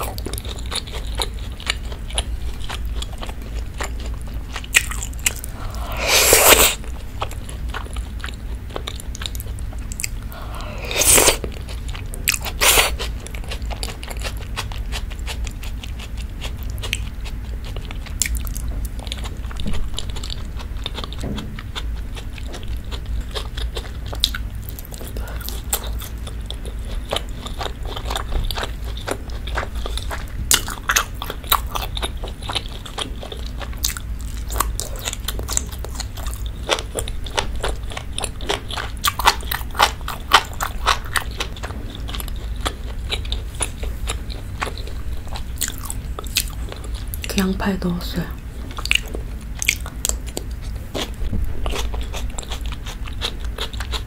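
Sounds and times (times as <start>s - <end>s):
close chewing mouth sounds: 0.0s - 54.0s
steady low hum: 0.0s - 54.0s
person slurping: 5.5s - 6.9s, 10.3s - 11.5s, 12.5s - 13.0s.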